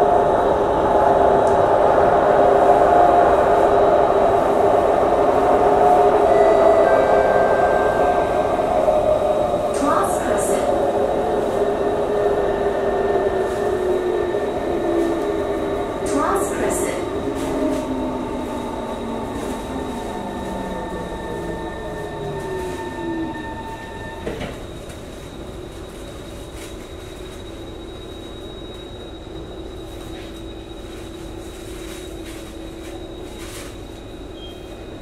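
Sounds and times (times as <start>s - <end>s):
steady train hum: 0.0s - 35.0s.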